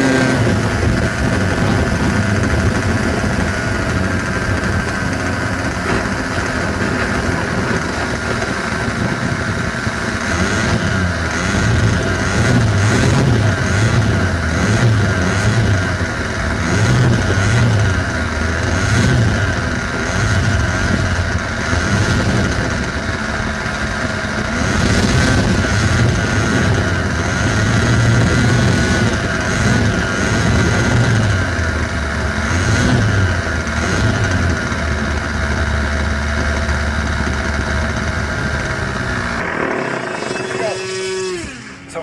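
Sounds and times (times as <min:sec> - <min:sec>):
model plane engine running: 0:00.0 - 0:42.0.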